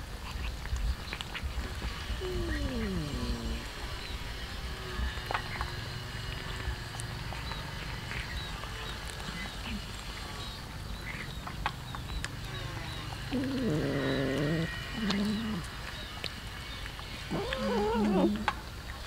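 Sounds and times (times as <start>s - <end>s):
cats chewing and licking: 0.0s - 19.0s
cat calling: 13.3s - 15.7s, 17.3s - 18.5s.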